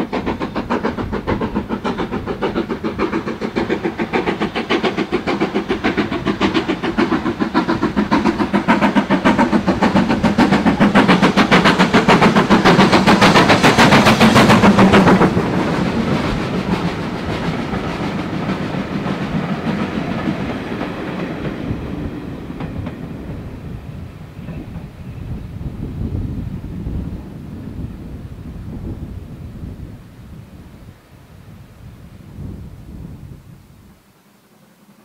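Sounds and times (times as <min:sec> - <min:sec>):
train wheels clattering on rails: 0:00.0 - 0:28.0
steam locomotive exhaust beat: 0:00.0 - 0:31.0.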